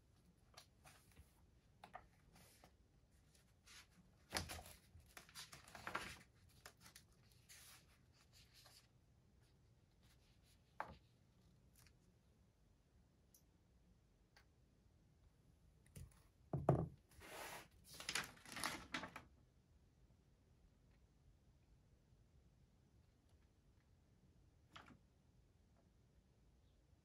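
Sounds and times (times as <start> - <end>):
book pages turning: 4.3 - 8.9, 17.2 - 19.2.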